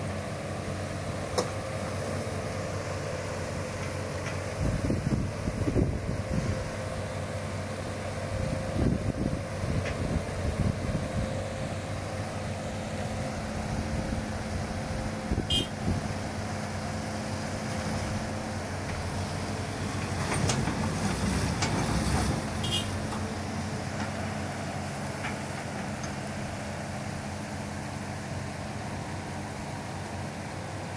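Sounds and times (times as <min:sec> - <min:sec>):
diesel engines running: 0:00.0 - 0:30.9.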